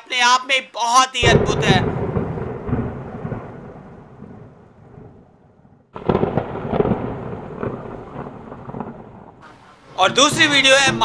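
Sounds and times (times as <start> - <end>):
low rumbling: 1.2 - 11.0
heavy rain pouring: 6.0 - 11.0.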